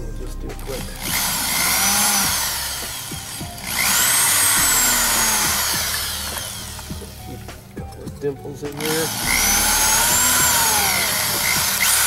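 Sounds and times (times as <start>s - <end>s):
cordless drill whining: 0.6s - 7.5s, 8.7s - 12.0s.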